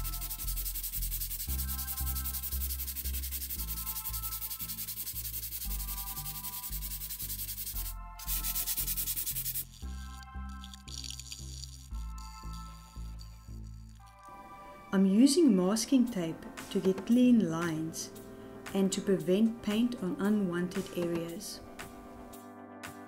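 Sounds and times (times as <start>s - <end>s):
hand sanding wood: 0.0s - 9.7s
background music: 0.0s - 23.0s.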